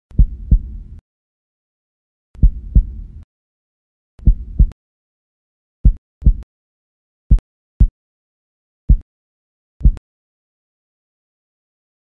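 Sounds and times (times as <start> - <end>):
heartbeat double thumps: 0.1 - 1.0, 2.4 - 3.2, 4.2 - 4.8, 5.8 - 6.5, 7.3 - 8.0.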